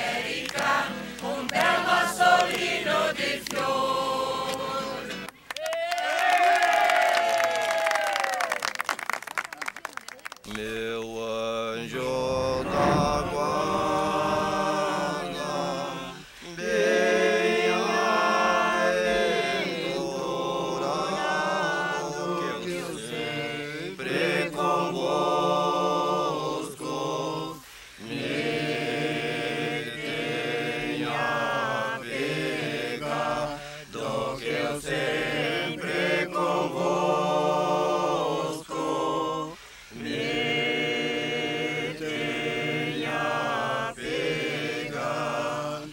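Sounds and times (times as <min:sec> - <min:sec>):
chant-like singing: 0:00.0 - 0:05.4, 0:10.4 - 0:45.9.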